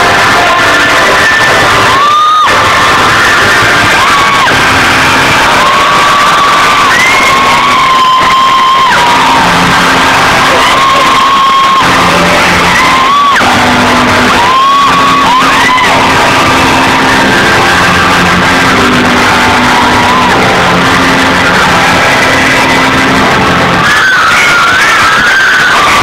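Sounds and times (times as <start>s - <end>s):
crowd screaming and cheering: 0.0s - 26.0s
loud rock concert music: 0.0s - 26.0s.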